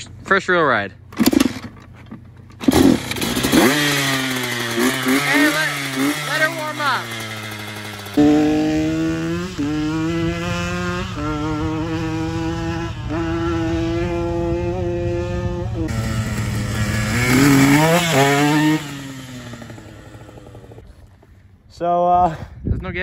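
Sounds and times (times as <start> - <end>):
dirt bike engine revving: 1.2 - 1.8, 2.6 - 21.1.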